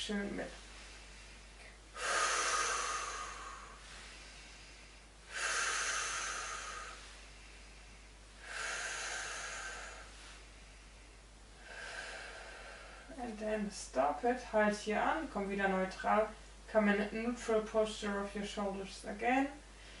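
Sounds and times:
woman breathing slowly: 0.5 - 13.2, 19.6 - 20.0.

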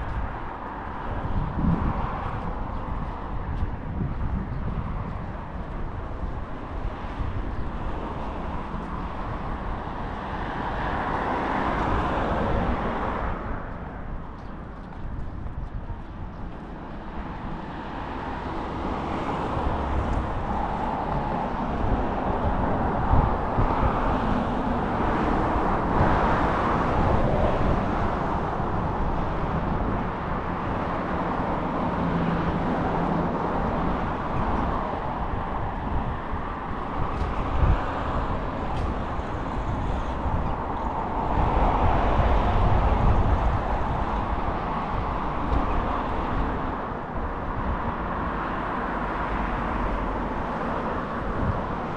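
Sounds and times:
road traffic rumble: 0.0 - 51.9.

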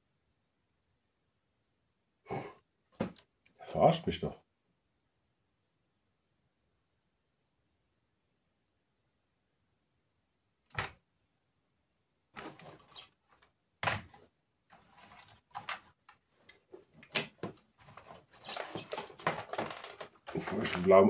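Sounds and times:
rustling handling noise: 12.4 - 21.0
keyboard knocks and rattles: 17.0 - 21.0.

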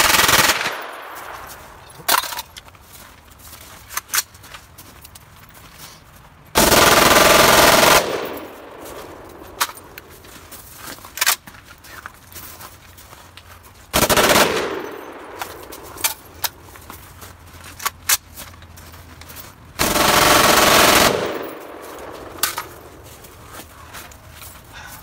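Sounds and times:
automatic rifle bursts: 0.0 - 2.4, 6.6 - 10.0, 14.0 - 16.6, 19.8 - 23.0.

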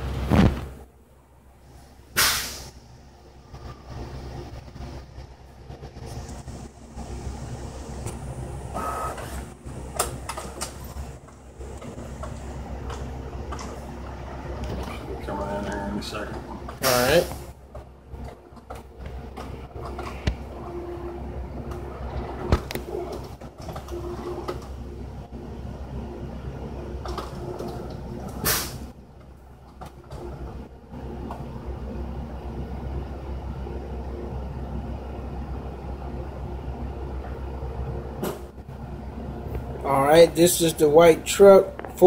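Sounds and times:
low room hum: 0.0 - 42.0
short hiss burst: 2.2 - 2.8, 28.4 - 28.8.

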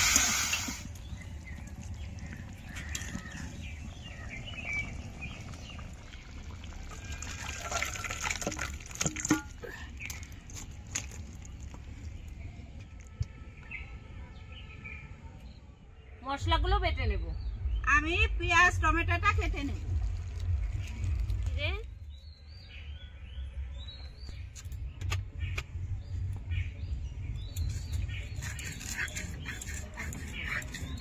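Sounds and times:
chicken sizzling in hot oil: 0.0 - 1.0
liquid splashing and dribbling: 0.0 - 12.4, 19.8 - 21.6.

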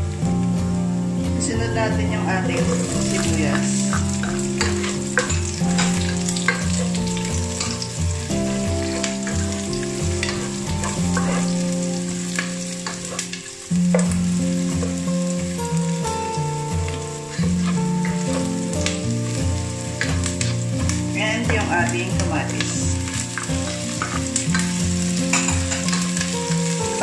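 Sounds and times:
background music low held notes: 0.0 - 27.0
onion and garlic sizzling in oil: 0.0 - 27.0
oil spitting crackles: 2.6 - 21.4, 22.1 - 27.0
plastic spatula scraping pot: 10.1 - 11.7, 17.3 - 18.4.

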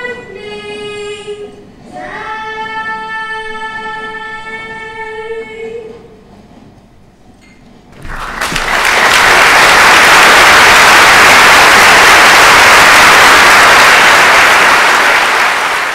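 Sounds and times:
audience applauding: 8.0 - 15.9.

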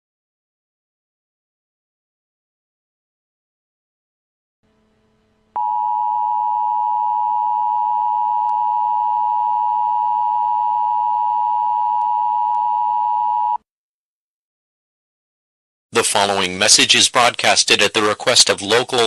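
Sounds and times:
two-tone alert signal: 5.6 - 13.6.

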